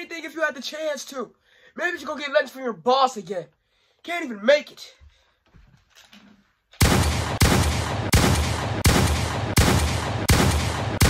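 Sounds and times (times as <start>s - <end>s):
gunshots: 6.8s - 11.0s.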